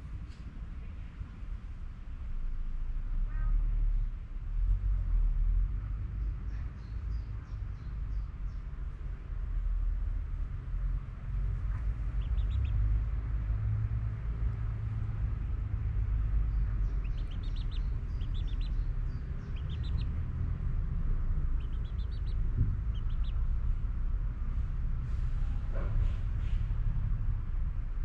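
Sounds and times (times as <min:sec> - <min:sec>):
steady low rumble: 0:07.0 - 0:28.0
small birds chirping: 0:11.6 - 0:24.0.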